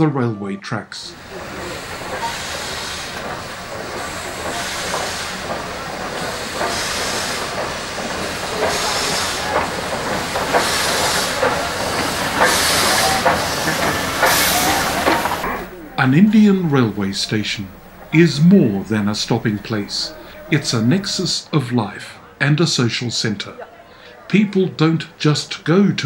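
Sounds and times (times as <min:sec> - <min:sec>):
steam hissing bursts: 0:01.1 - 0:21.4.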